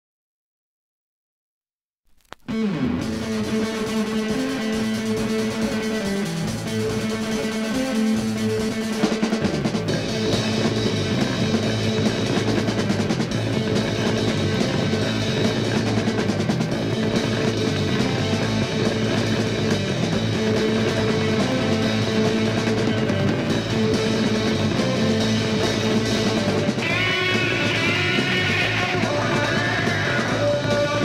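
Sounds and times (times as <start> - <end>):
bending guitar melody line: 2.5 - 31.0
rock band playing: 2.5 - 31.0.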